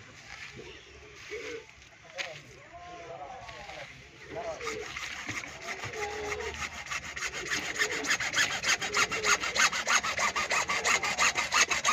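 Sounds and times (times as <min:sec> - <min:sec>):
hacksaw cutting plastic pipe: 0:04.5 - 0:11.9.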